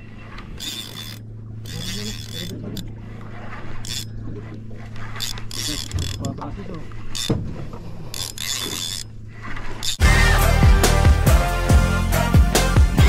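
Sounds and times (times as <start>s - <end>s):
steady low hum: 0.0s - 9.8s
fishing reel gears whirring and clicking: 0.2s - 7.3s, 8.0s - 10.0s.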